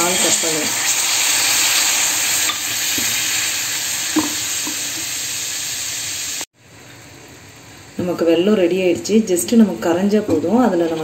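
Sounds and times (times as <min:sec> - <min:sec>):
water sizzling in hot pan: 0:00.0 - 0:06.5.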